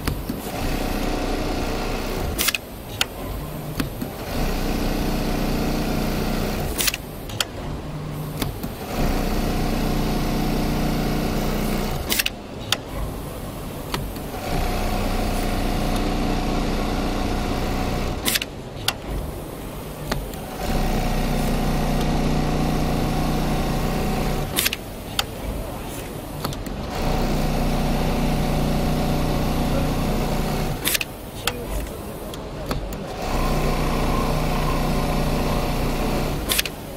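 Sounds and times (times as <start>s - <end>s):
sewing machine hum: 0.0s - 2.6s, 3.3s - 12.3s, 13.1s - 18.4s, 19.2s - 24.7s, 26.8s - 31.0s, 33.1s - 36.9s
sharp machine clicks: 0.0s - 4.8s, 5.6s - 9.6s, 11.2s - 13.1s, 17.6s - 19.2s, 24.3s - 25.4s, 30.5s - 33.8s, 35.7s - 36.9s.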